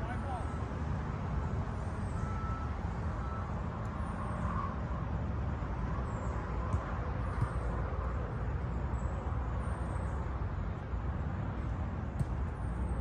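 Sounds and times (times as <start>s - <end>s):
ball being kicked: 12.2s - 12.5s.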